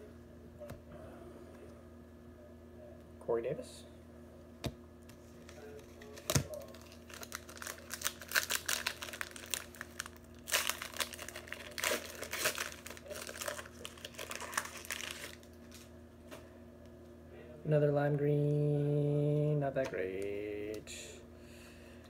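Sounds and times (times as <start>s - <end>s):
foil wrapper crinkling and tearing: 5.4s - 15.9s.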